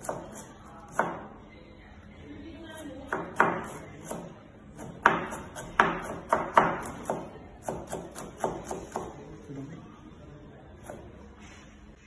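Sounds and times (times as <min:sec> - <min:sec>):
knife chopping on cutting board: 0:00.0 - 0:01.3, 0:03.1 - 0:09.2.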